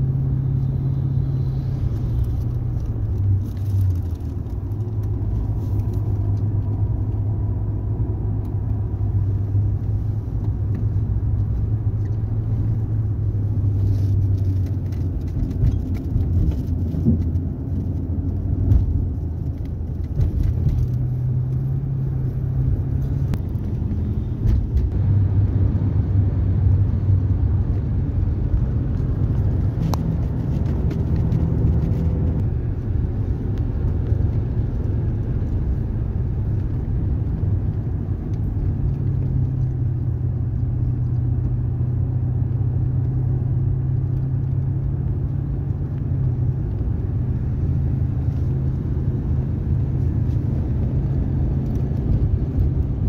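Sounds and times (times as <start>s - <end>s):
car engine hum: 0.0s - 53.0s
tyre rumble on highway: 0.0s - 53.0s.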